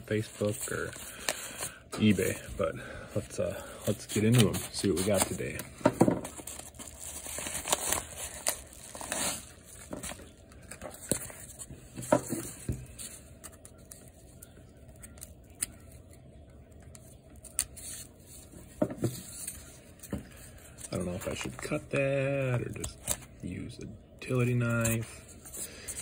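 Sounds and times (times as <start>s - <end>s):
paper mailer crinkling and tearing: 0.0s - 2.4s, 3.2s - 11.6s.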